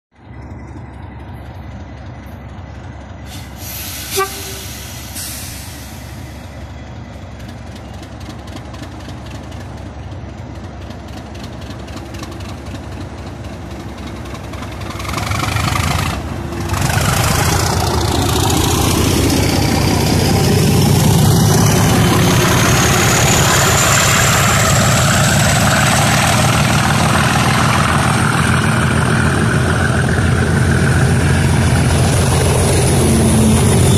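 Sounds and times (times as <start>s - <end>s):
diesel locomotive engines: 0.2s - 33.9s
turbocharger whistle: 3.8s - 5.1s, 33.6s - 33.9s
train horn toot: 4.0s - 5.0s.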